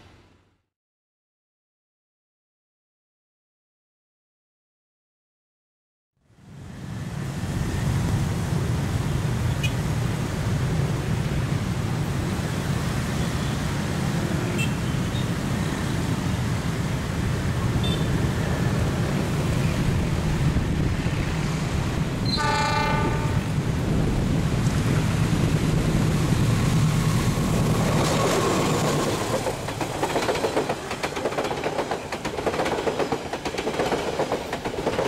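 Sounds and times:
locomotive horn: 22.2s - 23.6s.

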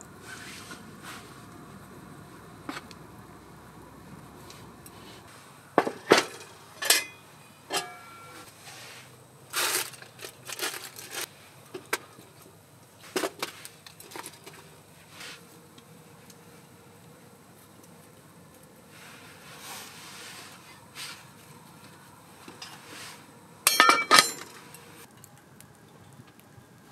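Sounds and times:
foil rustling and crinkling: 8.5s - 11.3s, 13.0s - 15.4s.

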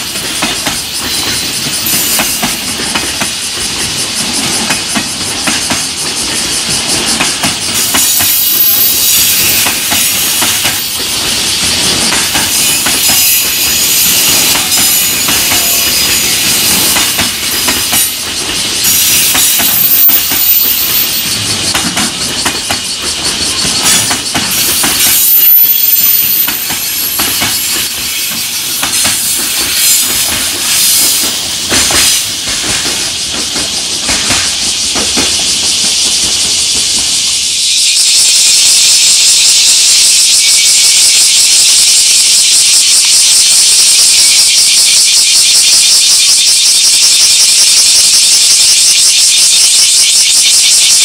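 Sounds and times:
wheels clacking over rail joints: 0.0s - 37.1s
train wheels rushing on rail: 0.0s - 51.0s.

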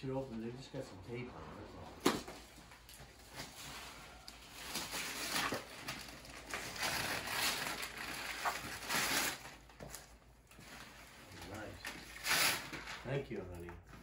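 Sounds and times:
wrapping paper tearing and rustling: 3.2s - 13.3s.

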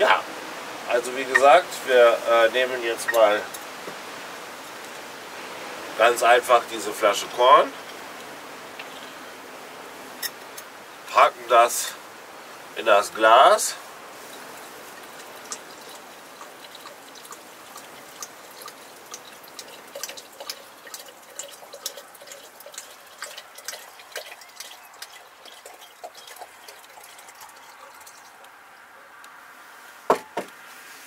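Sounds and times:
liquid pouring into glass jar: 14.2s - 28.5s.

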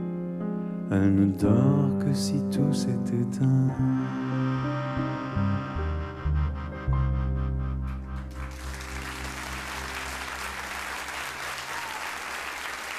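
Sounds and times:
audience applause: 8.2s - 12.9s.

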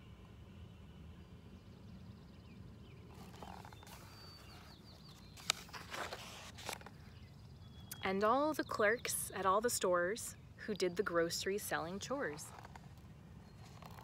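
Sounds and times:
faint bird chirps: 1.1s - 5.6s
book page turning: 3.1s - 7.0s, 12.4s - 14.0s.

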